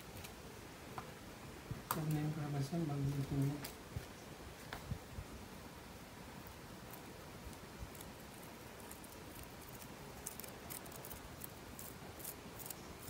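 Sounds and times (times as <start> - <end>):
cheese grating on metal grater: 8.0 - 12.8.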